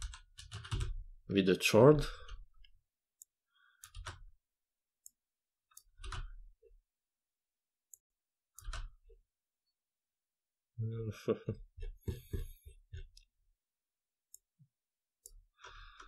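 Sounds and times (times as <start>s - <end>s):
keyboard and mouse clicks: 0.0s - 1.0s, 2.2s - 4.3s, 5.0s - 6.4s, 7.9s - 9.2s.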